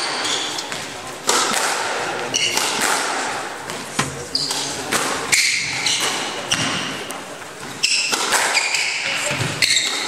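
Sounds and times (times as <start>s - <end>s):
shoes squeaking on hardwood: 3.7s - 7.0s.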